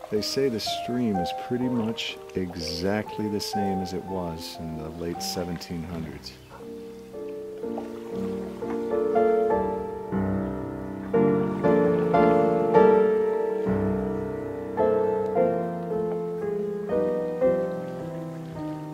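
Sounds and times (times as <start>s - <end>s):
slow piano melody: 0.0s - 18.9s.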